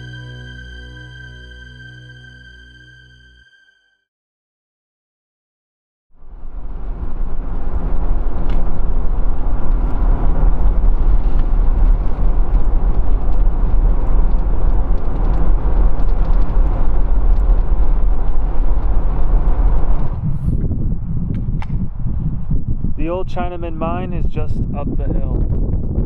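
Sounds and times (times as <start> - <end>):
vehicle engine rumble: 6.2 - 26.0.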